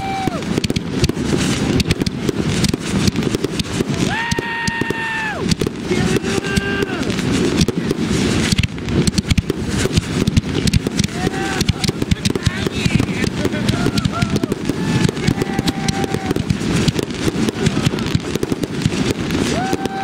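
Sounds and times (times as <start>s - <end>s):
fireworks bangs: 0.0s - 20.0s
fireworks crackling and popping: 0.0s - 20.0s.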